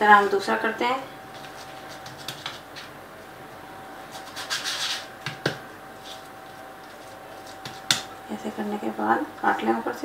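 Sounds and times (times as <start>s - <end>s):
faint hum: 0.0s - 10.0s
cookie cutter rubbing dough: 1.4s - 2.9s, 4.1s - 8.0s.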